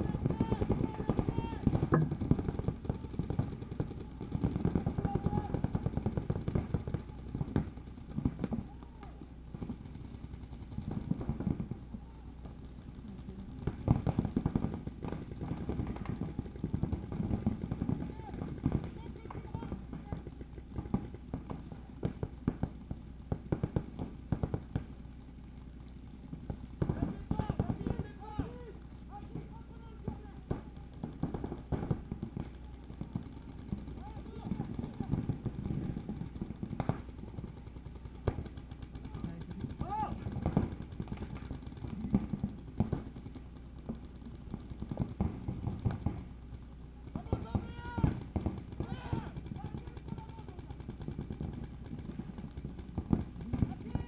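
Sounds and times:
distant shouting: 0.0 - 2.2, 4.9 - 5.7, 26.8 - 30.6, 39.0 - 40.6, 47.2 - 50.8.

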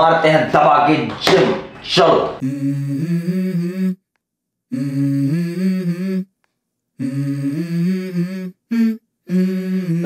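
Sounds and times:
person humming a melody: 2.4 - 4.1, 4.7 - 6.4, 7.0 - 10.0.

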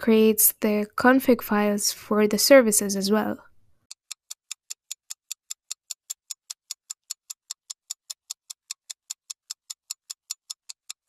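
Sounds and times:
rapid clock ticking: 3.8 - 11.0.

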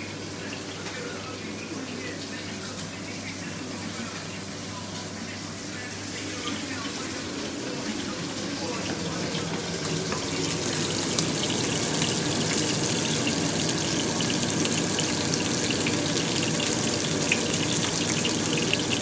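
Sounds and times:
steaks sizzling in a frying pan: 8.3 - 19.0.

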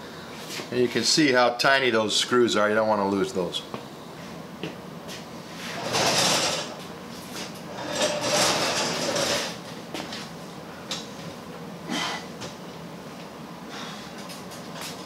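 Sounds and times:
heavy cabinet scraping on concrete: 5.6 - 9.6.

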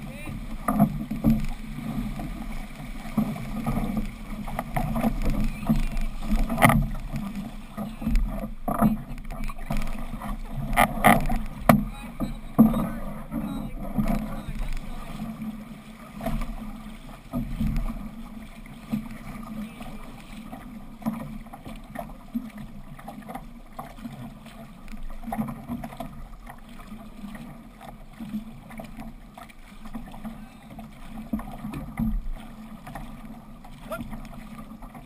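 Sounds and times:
paddles entering water: 0.0 - 35.0
water rushing along canoe hull: 0.0 - 35.0.

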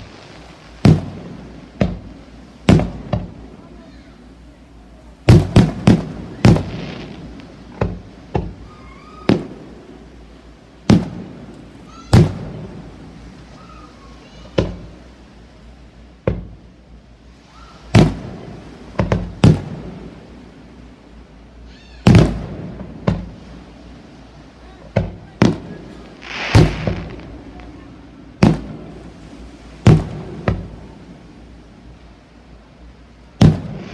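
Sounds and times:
firework shells bursting: 0.0 - 3.4, 5.3 - 9.7, 10.8 - 13.0, 17.9 - 20.0, 22.0 - 23.4, 24.9 - 27.7, 28.4 - 29.1, 29.8 - 30.8, 33.4 - 33.9.

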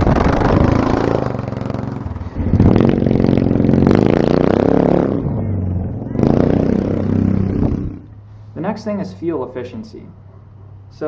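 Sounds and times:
go-kart engine revving: 0.0 - 8.2.

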